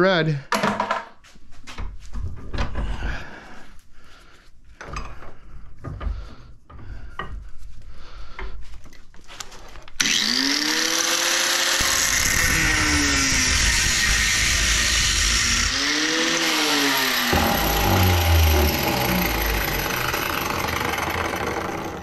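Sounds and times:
angle grinder whining: 0:09.9 - 0:22.0.

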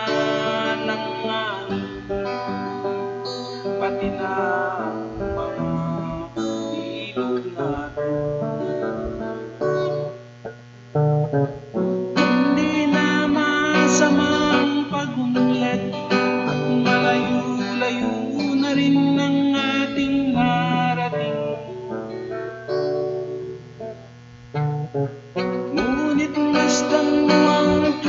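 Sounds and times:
man singing: 0:00.0 - 0:09.2, 0:12.2 - 0:22.1, 0:25.7 - 0:28.0
strummed acoustic guitar: 0:00.0 - 0:28.0.

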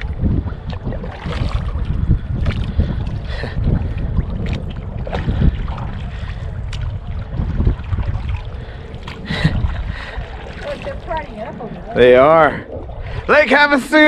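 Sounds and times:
paddle strokes splashing: 0:00.0 - 0:14.0
wind buffeting microphone: 0:00.0 - 0:14.0.

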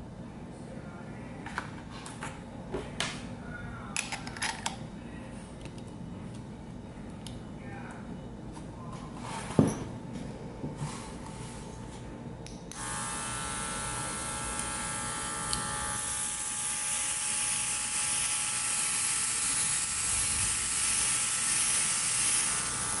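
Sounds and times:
compressor high-pitched whine: 0:12.7 - 0:23.0.

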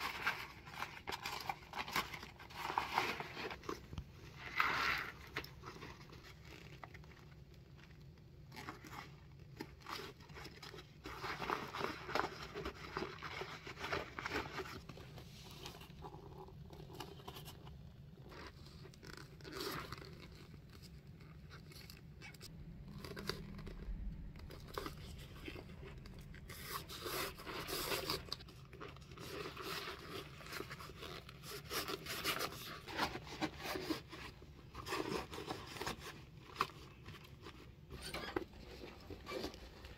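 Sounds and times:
steady low hum: 0:21.8 - 0:28.8.

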